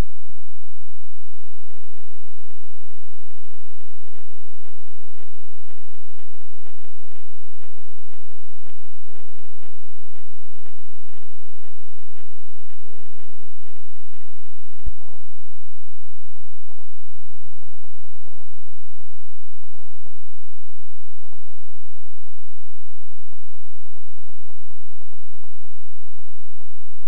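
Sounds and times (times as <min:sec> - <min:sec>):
steady tones: 0:00.0 - 0:26.2
electrical hum and hiss: 0:00.6 - 0:27.0
faint regular ticks: 0:01.1 - 0:15.0.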